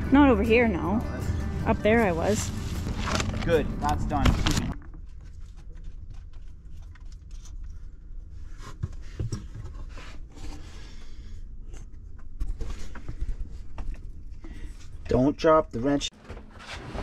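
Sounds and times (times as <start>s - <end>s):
steady low rumble: 0.0s - 5.4s.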